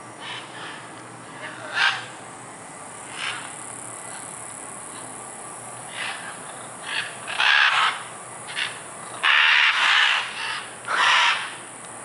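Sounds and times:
macaws squawking: 0.2 - 2.2, 3.1 - 4.3, 5.9 - 11.6.

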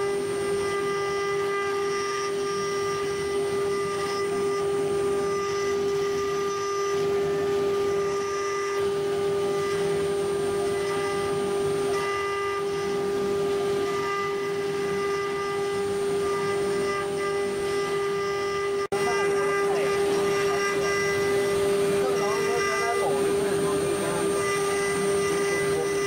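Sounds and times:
bit cutting metal: 0.0 - 26.0
router spindle whine: 0.0 - 26.0.

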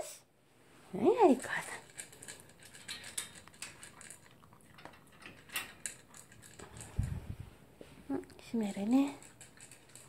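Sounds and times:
dog crunching food in bowl: 1.3 - 7.3, 8.8 - 10.0.

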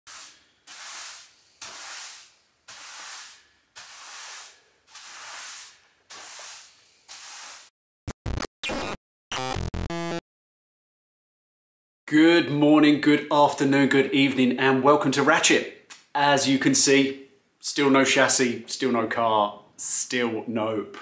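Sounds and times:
push broom swishing: 0.1 - 7.7
glitchy electronic bursts: 8.1 - 10.2.

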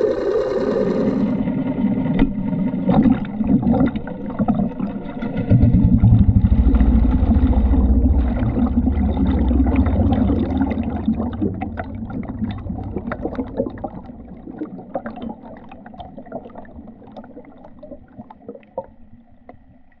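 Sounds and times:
underwater bubbling and fizzing: 0.0 - 20.0
low engine rumble: 5.5 - 14.3.

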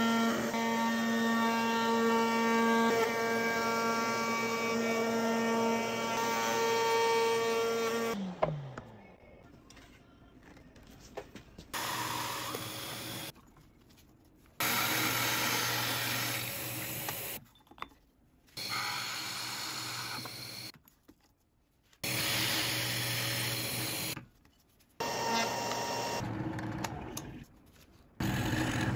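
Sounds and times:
drill press cutting wood: 11.8 - 13.3, 14.6 - 17.4, 18.6 - 20.7, 22.0 - 24.2.

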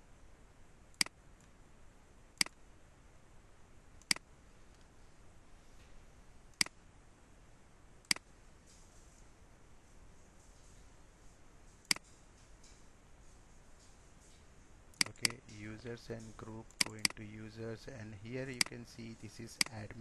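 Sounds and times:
faint background hiss: 0.0 - 20.0
computer mouse clicks: 0.9 - 1.6, 4.0 - 4.9, 6.5 - 6.8, 8.0 - 8.3, 11.8 - 12.1, 16.7 - 17.2, 19.6 - 19.8.

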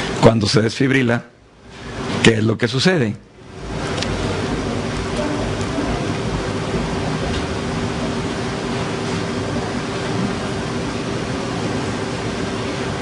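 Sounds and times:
steady hiss: 0.0 - 13.0
low hum: 3.2 - 13.0.

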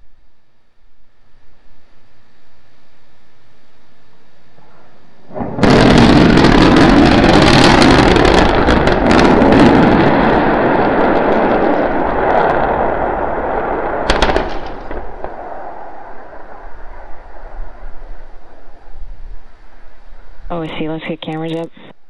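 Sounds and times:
deep rumble with sharp crackles: 4.1 - 21.9
rocket explosion blast: 5.3 - 18.9.

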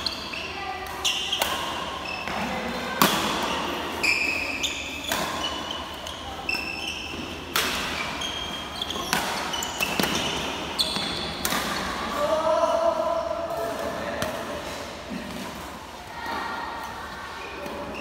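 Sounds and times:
rackets hitting shuttlecock: 0.8 - 4.0, 4.7 - 12.2
shoes squeaking on wooden floor: 7.9 - 11.3.

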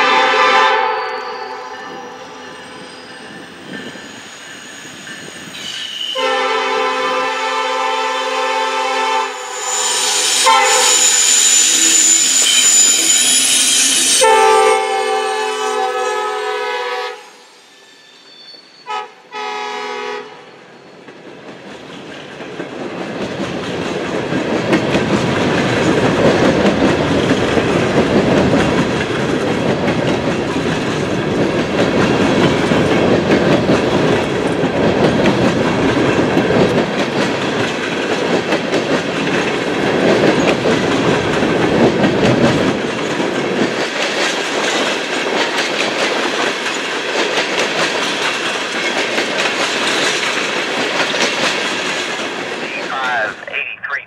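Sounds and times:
locomotive horn blasts: 0.0 - 1.3, 6.2 - 9.4, 14.2 - 17.3, 18.9 - 20.4.

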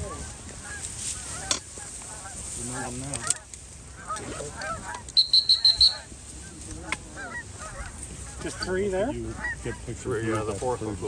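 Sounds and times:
geese honking: 0.0 - 10.9
shrill high peeps: 5.2 - 6.1.

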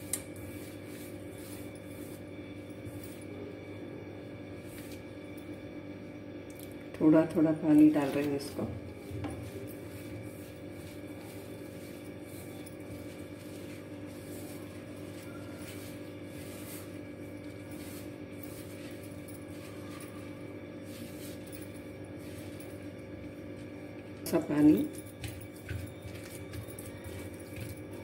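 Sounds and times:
steady low hum: 0.0 - 28.0
hands squishing dough in bowl: 25.1 - 28.0.

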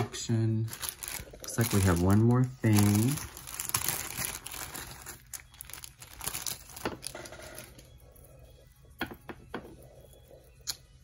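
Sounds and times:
packaging crinkling and rustling: 0.6 - 7.9.

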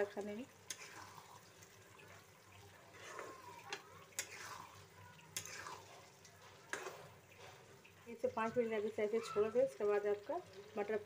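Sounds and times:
spatula scraping wet food: 0.7 - 7.8.

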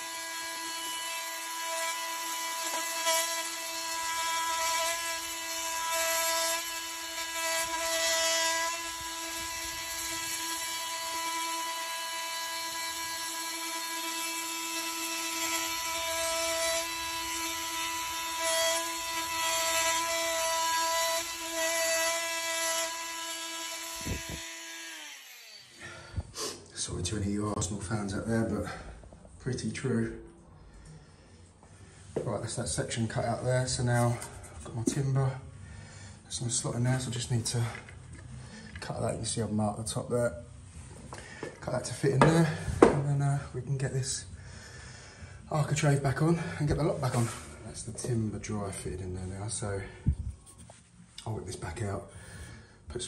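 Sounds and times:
oscillating tool cutting wood: 0.0 - 25.8.

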